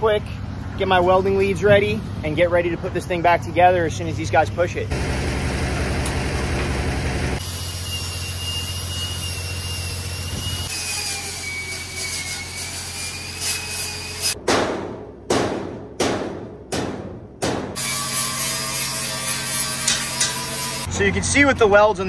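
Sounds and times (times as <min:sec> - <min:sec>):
low engine hum: 0:04.5 - 0:07.4
angle grinder whining on steel: 0:07.4 - 0:14.3, 0:17.8 - 0:20.9.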